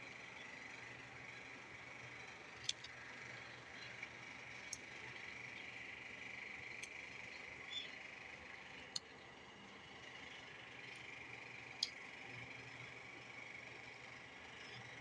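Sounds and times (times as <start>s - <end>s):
metal fork clicking on crock: 2.6s - 2.9s.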